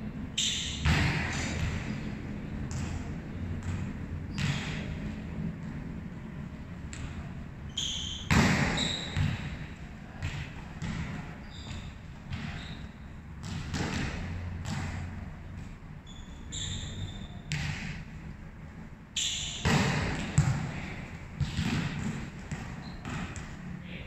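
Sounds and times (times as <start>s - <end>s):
volleyball thudding on court floor: 8.3s - 9.5s, 19.6s - 20.7s, 21.4s - 23.4s
short high-pitched squeaks: 16.0s - 17.4s.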